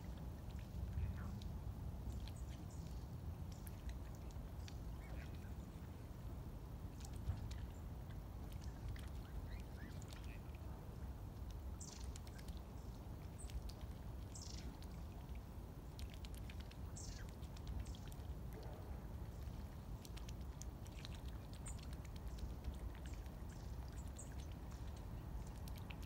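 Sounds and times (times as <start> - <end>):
low background rumble: 0.0 - 26.0
small birds calling: 7.0 - 10.6, 11.8 - 15.2.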